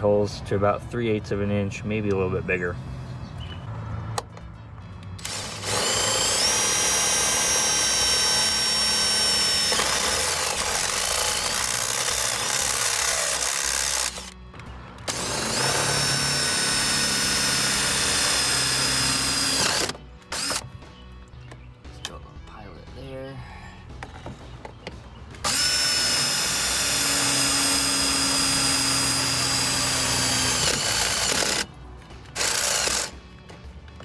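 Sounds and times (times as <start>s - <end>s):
cordless drill motor whine: 5.2s - 14.4s, 15.1s - 20.6s, 25.4s - 31.7s, 32.4s - 33.1s.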